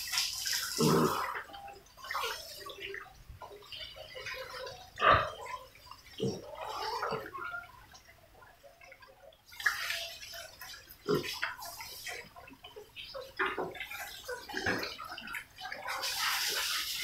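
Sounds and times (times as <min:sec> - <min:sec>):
piglets grunting and snuffling: 0:00.6 - 0:01.8, 0:04.2 - 0:07.6, 0:10.9 - 0:12.4.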